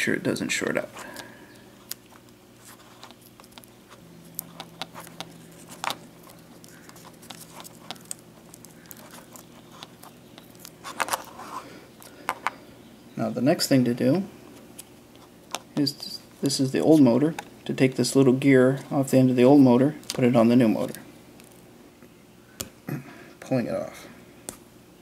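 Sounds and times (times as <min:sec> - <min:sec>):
electrical tape crinkling: 0:01.0 - 0:12.5, 0:20.0 - 0:21.6.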